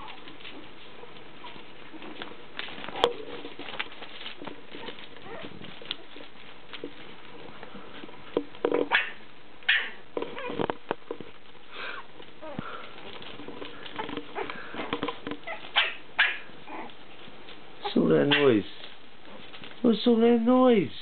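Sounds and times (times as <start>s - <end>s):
rustles and scuffles: 0.0s - 9.4s, 10.0s - 21.0s
puppies yipping and squeaking: 2.8s - 6.5s, 8.9s - 10.6s, 13.7s - 17.2s, 17.8s - 18.6s.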